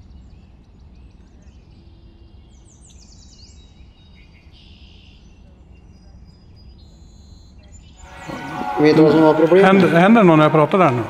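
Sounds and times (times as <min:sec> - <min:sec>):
small birds chirping: 0:00.0 - 0:08.1.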